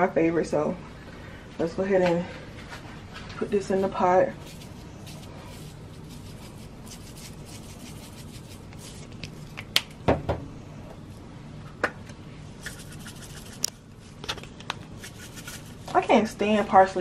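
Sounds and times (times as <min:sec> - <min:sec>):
low steady hum: 0:00.0 - 0:17.0
spice container shaking: 0:04.3 - 0:09.7, 0:12.6 - 0:13.7, 0:14.9 - 0:15.9.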